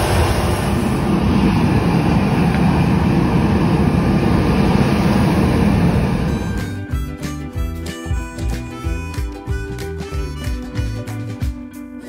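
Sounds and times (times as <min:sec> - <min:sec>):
road traffic noise: 0:00.0 - 0:07.5
background music with steady beat: 0:06.3 - 0:12.0.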